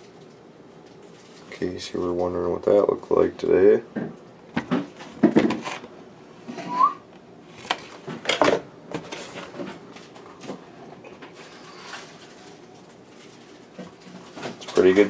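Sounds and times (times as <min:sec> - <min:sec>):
short rising whistle: 0:06.6 - 0:07.0.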